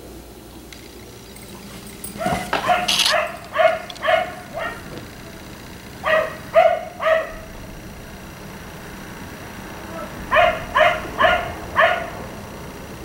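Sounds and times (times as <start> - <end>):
dog barking: 1.5 - 5.1, 6.0 - 7.5, 10.2 - 12.3.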